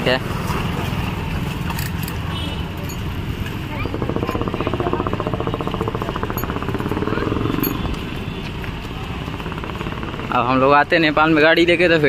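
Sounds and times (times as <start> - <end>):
vehicle engine pulsing: 2.9 - 11.4.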